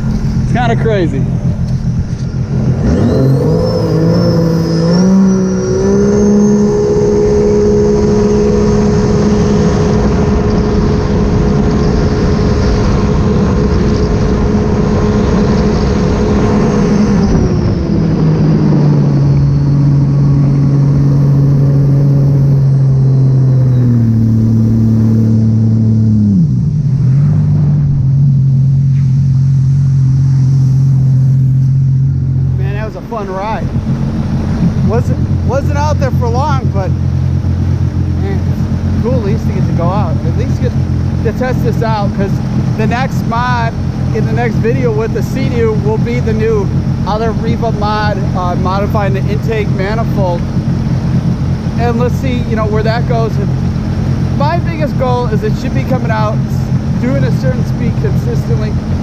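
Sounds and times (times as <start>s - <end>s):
high engine whine: 0.0s - 59.0s
jet ski engine revving: 0.0s - 59.0s
water rushing: 28.6s - 59.0s.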